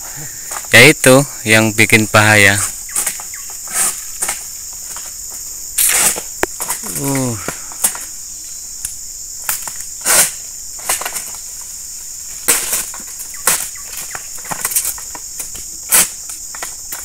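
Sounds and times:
insects droning: 0:00.0 - 0:17.0
fronds rustling: 0:01.5 - 0:17.0
sickle cutting palm fronds: 0:02.5 - 0:08.1, 0:09.4 - 0:17.0.

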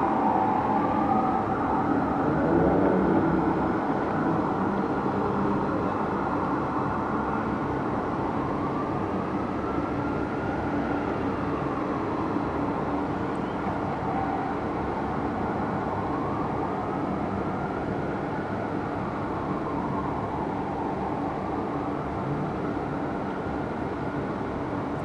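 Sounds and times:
distant fire engine siren wailing: 0:00.0 - 0:25.0
hum of city traffic: 0:00.0 - 0:25.0.

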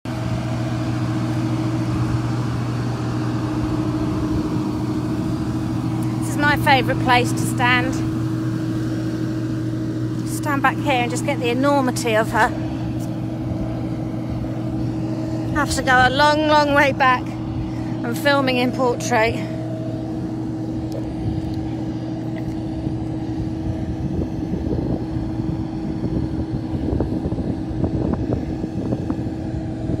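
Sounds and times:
steady machine drone: 0:00.1 - 0:30.0
uneven buffeting: 0:10.0 - 0:24.1.

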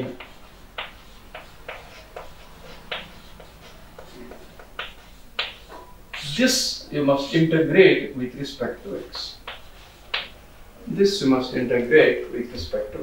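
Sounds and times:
pen tapping while writing: 0:00.0 - 0:05.7, 0:09.1 - 0:10.4
faint room hum: 0:00.0 - 0:13.0.

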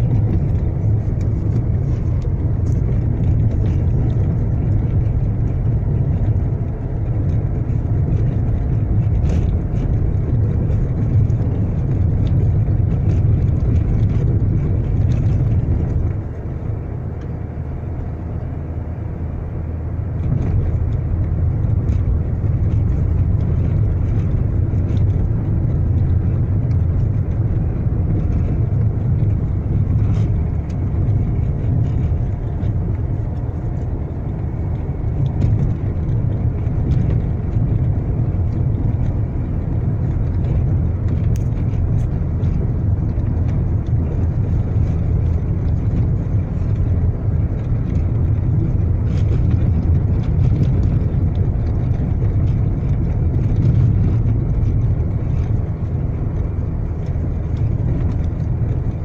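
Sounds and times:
road and engine rumble: 0:00.0 - 0:59.0
faint clicks and knocks: 0:20.1 - 0:59.0.

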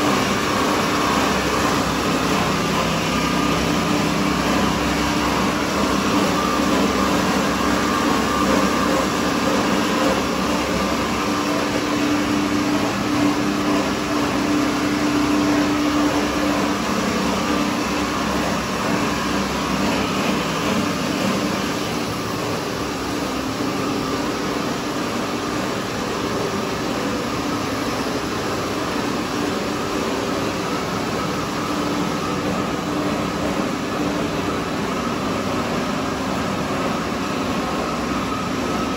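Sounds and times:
production line machinery drone: 0:00.0 - 0:38.9.

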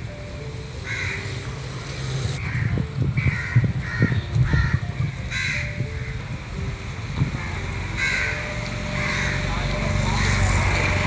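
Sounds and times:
crows cawing: 0:00.8 - 0:01.4, 0:02.4 - 0:06.2, 0:07.4 - 0:10.6.

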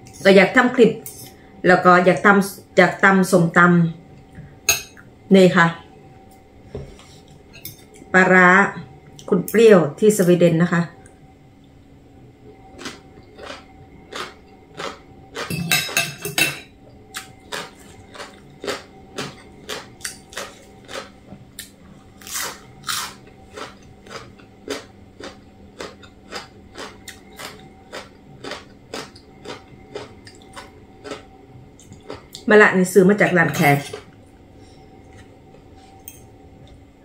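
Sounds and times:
person chewing crunchy food: 0:12.7 - 0:16.0, 0:17.0 - 0:32.5.

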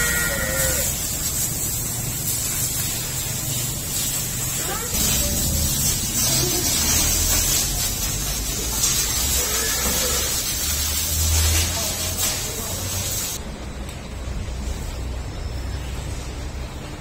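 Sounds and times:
loud hiss: 0:00.0 - 0:13.4.

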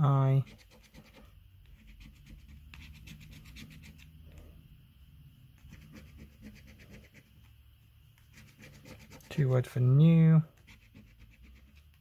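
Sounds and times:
coin scratching a scratchcard: 0:00.4 - 0:04.1, 0:05.6 - 0:07.3, 0:08.3 - 0:09.4, 0:10.6 - 0:12.0.

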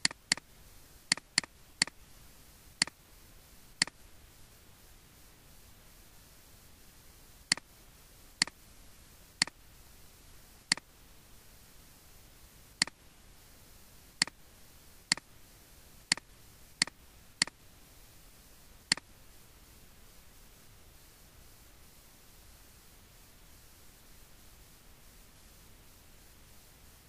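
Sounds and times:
mouse button clicking: 0:00.0 - 0:00.4, 0:01.1 - 0:02.0
faint background hiss: 0:00.0 - 0:27.0.

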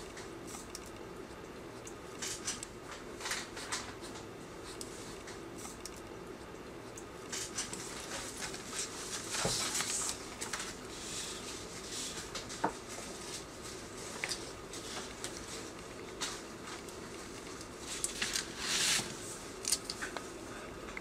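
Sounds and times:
plastic film rustling on paper: 0:07.3 - 0:20.1.

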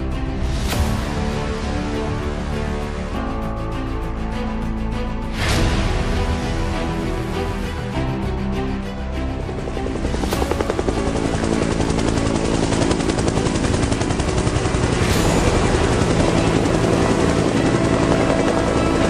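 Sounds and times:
background music: 0:00.0 - 0:19.0
helicopter rotor blades chopping: 0:09.4 - 0:19.0.

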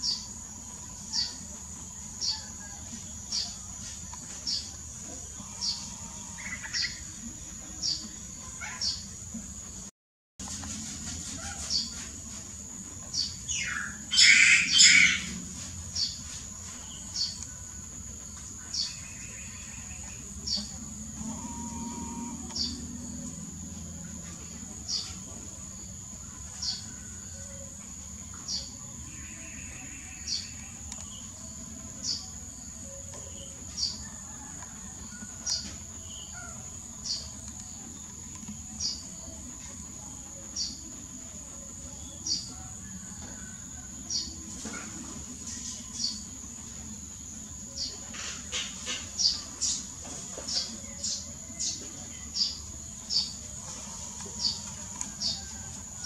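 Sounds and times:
high insect drone: 0:17.2 - 0:56.0.

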